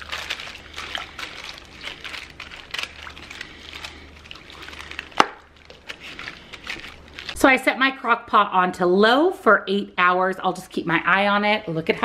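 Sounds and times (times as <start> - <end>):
plastic liner crinkling: 0.0 - 7.5
wet squishing of stirred food: 0.0 - 7.5.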